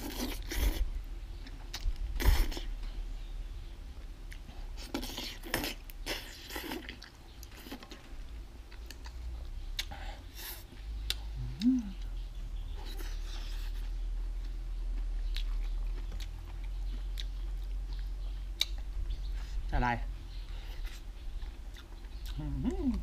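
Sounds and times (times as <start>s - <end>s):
chewing: 0.0s - 3.0s, 4.0s - 19.6s, 20.3s - 23.0s.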